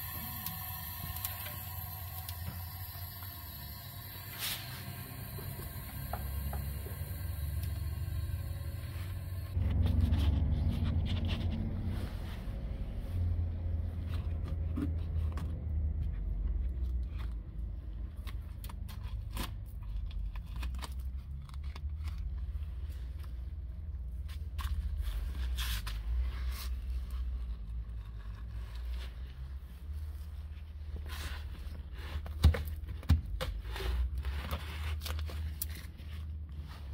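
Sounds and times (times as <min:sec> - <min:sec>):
low rumble: 0:00.0 - 0:18.1.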